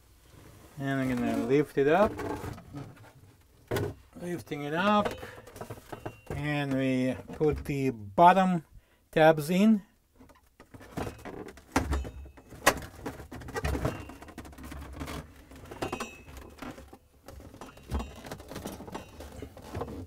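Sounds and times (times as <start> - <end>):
plastic scraping on plastic: 0.3 - 4.0, 12.5 - 20.0.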